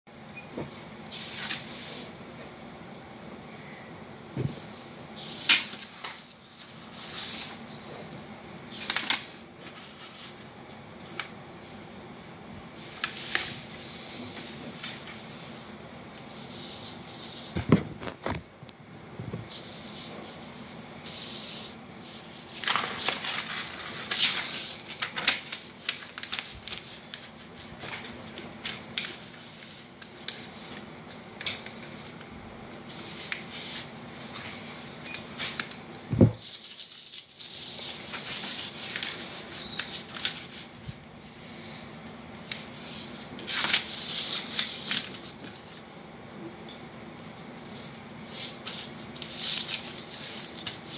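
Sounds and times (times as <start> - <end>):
paper rustling and crackling: 22.1 - 41.0, 42.3 - 46.0, 47.2 - 50.9.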